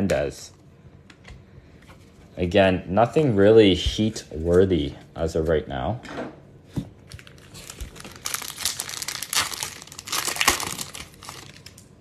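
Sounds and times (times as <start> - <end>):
foil wrapper crinkling: 7.1 - 11.9.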